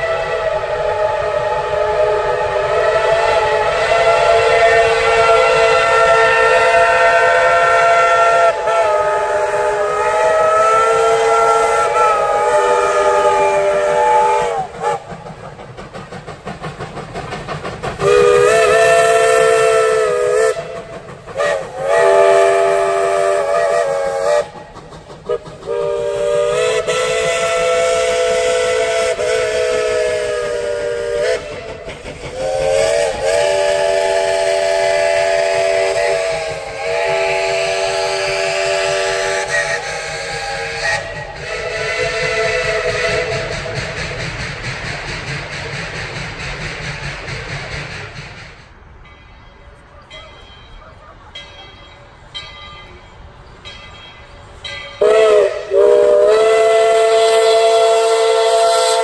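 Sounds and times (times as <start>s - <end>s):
steam locomotive whistle blasts: 0.0s - 15.2s, 18.0s - 44.6s, 54.7s - 59.0s
steam engine exhaust chuffing: 0.0s - 49.0s, 54.5s - 59.0s.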